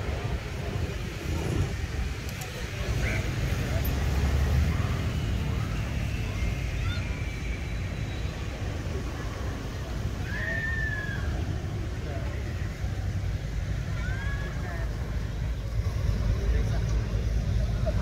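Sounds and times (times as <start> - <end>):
wind on microphone: 0.0 - 3.6
distant traffic rumble: 0.0 - 18.0.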